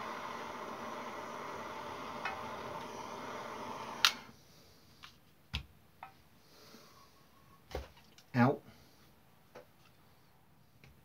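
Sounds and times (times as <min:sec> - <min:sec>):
torch shutoff click: 0:00.0 - 0:04.3
gas torch hissing: 0:00.0 - 0:04.4.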